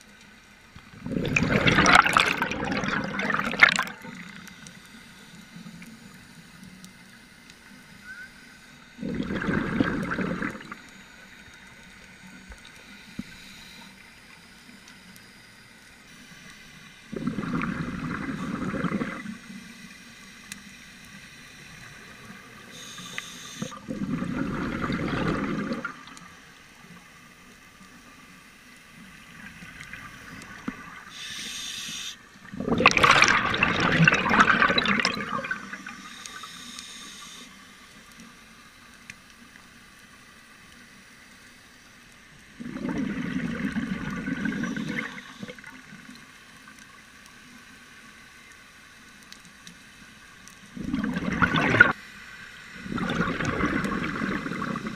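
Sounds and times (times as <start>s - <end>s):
underwater bubbles gurgling: 0.0s - 6.9s, 7.5s - 14.1s, 16.4s - 19.9s, 21.0s - 54.9s
regulator inhalation hiss: 19.5s - 23.8s, 31.0s - 32.4s, 35.7s - 38.0s.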